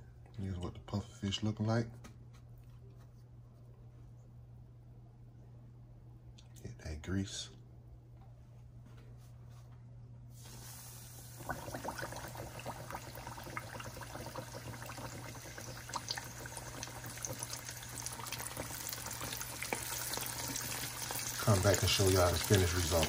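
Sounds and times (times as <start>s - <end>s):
fish deep-frying in oil: 10.5s - 23.0s.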